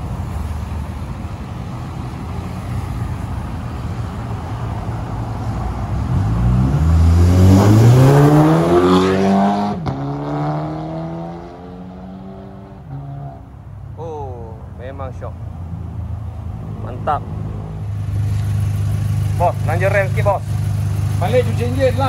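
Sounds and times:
car engine accelerating: 6.0s - 13.4s.

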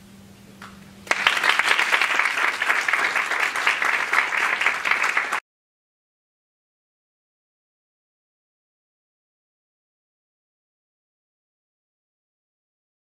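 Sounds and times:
audience applauding: 1.1s - 5.4s.

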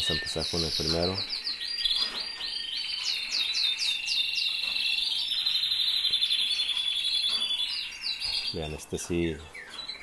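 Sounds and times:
canaries singing: 0.0s - 10.0s.

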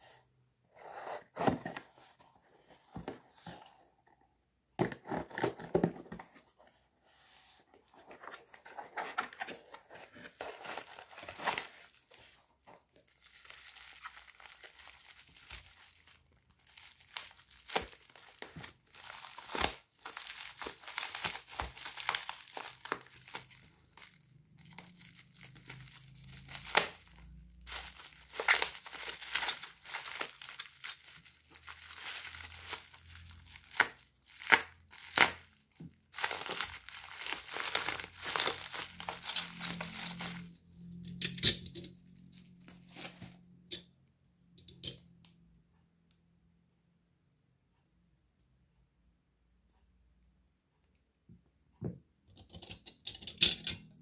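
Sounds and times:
bubble wrap crinkling and tearing: 8.0s - 40.6s, 42.1s - 43.6s.

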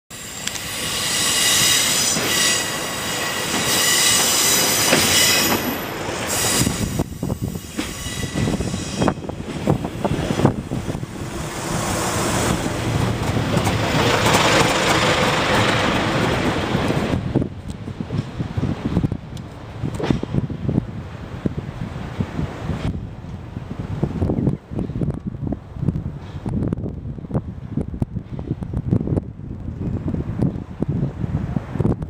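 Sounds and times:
train wheels squealing: 0.1s - 9.4s
train running noise: 0.1s - 32.0s
wheels clicking over rail joints: 12.5s - 18.4s.

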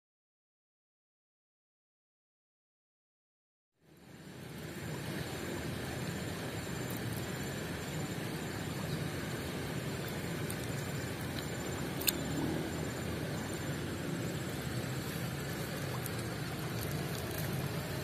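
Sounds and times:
stream rushing: 4.1s - 18.0s.

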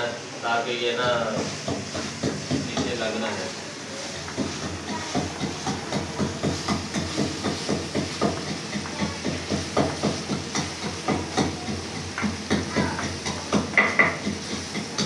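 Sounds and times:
frying hiss: 0.0s - 15.0s.

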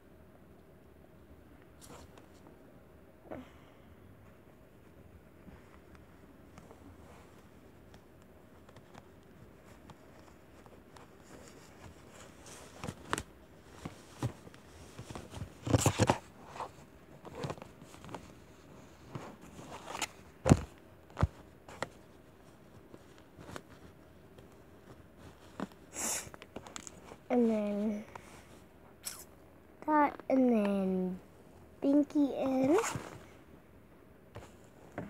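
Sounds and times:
doll clothes rustling: 4.3s - 28.7s, 31.5s - 33.4s.

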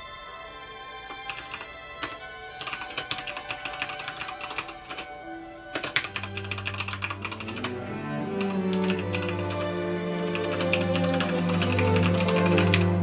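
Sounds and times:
background music: 0.0s - 13.0s
mechanical keyboard typing: 1.3s - 5.1s, 5.7s - 7.7s, 8.4s - 9.7s, 10.3s - 13.0s.

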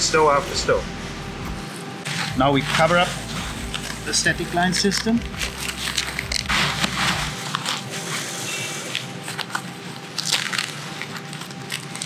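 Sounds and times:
fabric rustling and scraping: 5.0s - 12.0s
fabric crinkles and scuffs: 5.4s - 12.0s.

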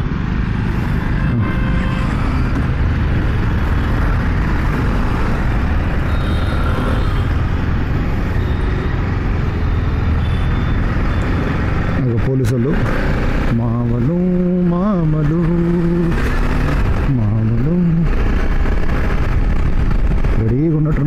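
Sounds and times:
road noise: 0.0s - 21.0s
wind rumble on microphone: 15.9s - 20.6s.

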